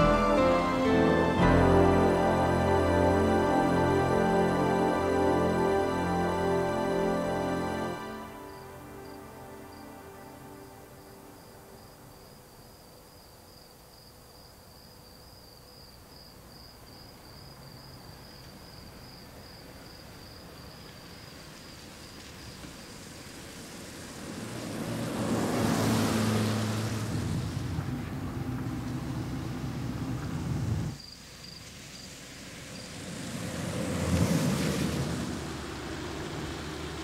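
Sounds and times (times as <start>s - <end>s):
car passing on road: 0.0s - 12.7s, 17.8s - 37.0s
cricket chirping: 4.3s - 26.8s, 30.9s - 33.9s.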